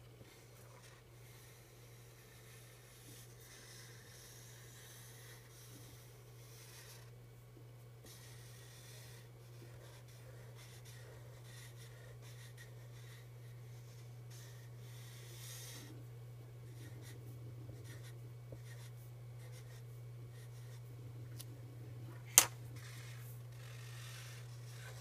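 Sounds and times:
steady low hum: 0.0 - 25.0
marker drawing on paper: 0.3 - 7.1, 8.0 - 15.9, 17.8 - 19.8, 22.8 - 25.0.

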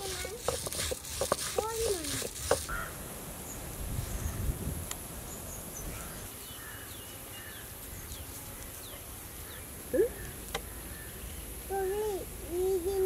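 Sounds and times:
small birds chirping: 5.2 - 13.0.

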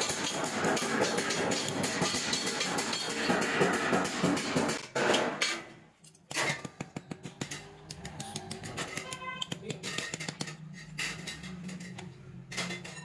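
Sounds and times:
hammer striking metal tube: 0.0 - 5.7.

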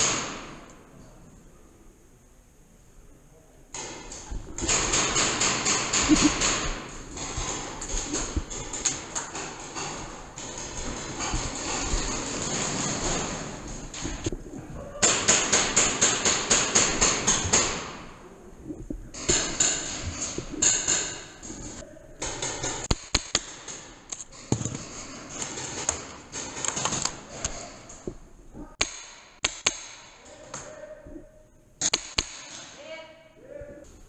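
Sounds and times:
paintball markers firing: 15.0 - 18.1, 19.2 - 24.7, 28.8 - 30.2, 31.8 - 32.7.

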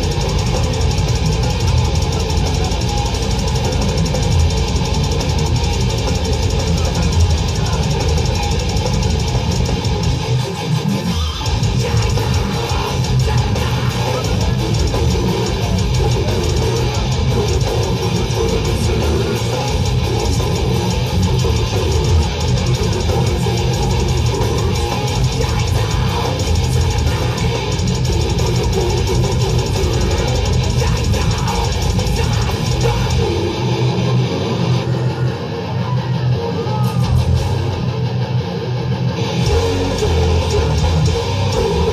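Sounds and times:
drum kit: 0.0 - 35.2, 36.7 - 41.9
vocalist growling: 0.0 - 38.4, 39.2 - 41.9
bass guitar: 0.0 - 41.9
distorted electric guitars: 0.0 - 41.9.

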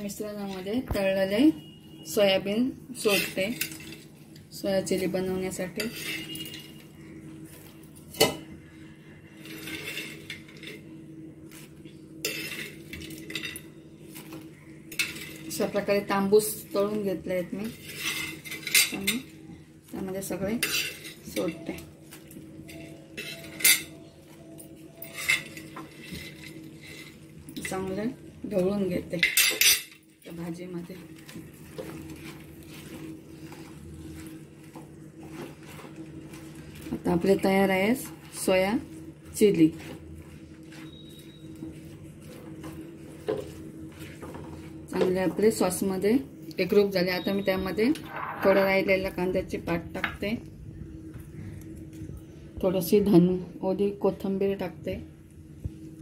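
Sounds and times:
steady low hum: 0.0 - 56.0
wooden spatula scraping a pan: 5.6 - 6.6.

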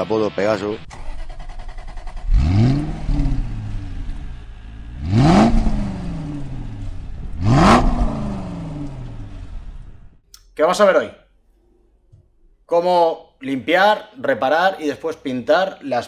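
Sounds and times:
car engine idling and revving: 0.8 - 10.2.

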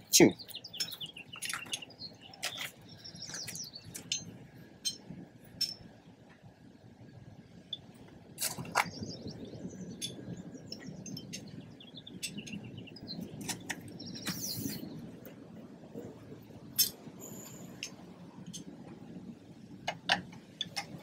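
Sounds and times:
birds chirping: 0.0 - 21.0
metal bolts clicking and clinking: 0.8 - 5.9, 19.8 - 21.0.

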